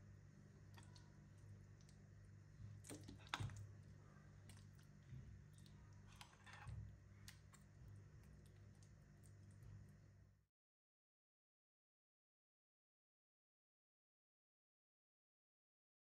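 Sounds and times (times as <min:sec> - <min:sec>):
low steady hum: 0:00.0 - 0:10.4.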